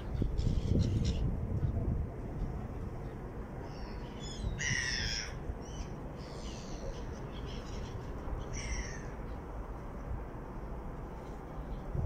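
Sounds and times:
steady low rumble: 0.0s - 12.0s
gulls calling: 3.6s - 9.3s.

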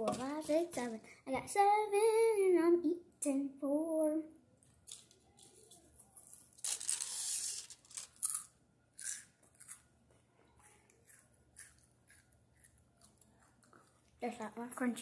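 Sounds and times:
foil wrapper crinkling: 4.8s - 8.4s
chocolate wafer crunching: 4.8s - 14.2s.

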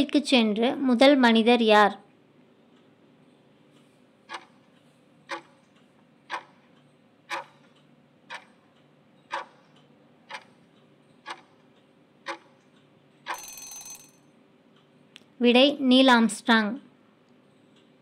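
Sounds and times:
sharp clock ticks: 3.7s - 14.9s.

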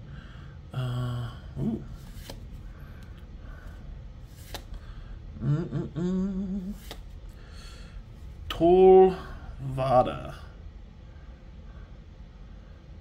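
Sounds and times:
man humming: 0.7s - 2.1s, 5.3s - 7.0s
trading cards clicking: 2.0s - 3.2s, 4.3s - 4.8s, 6.8s - 7.2s.

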